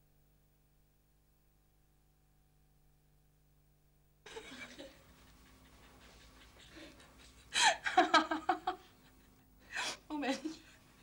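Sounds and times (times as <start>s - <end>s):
woman laughing: 4.3s - 10.8s.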